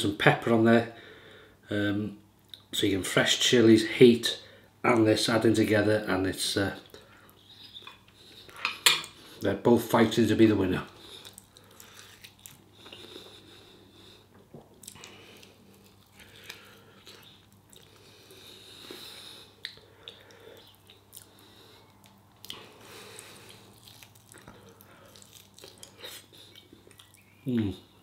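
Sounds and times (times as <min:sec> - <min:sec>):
biting and chewing: 0:11.0 - 0:13.1, 0:19.6 - 0:27.2.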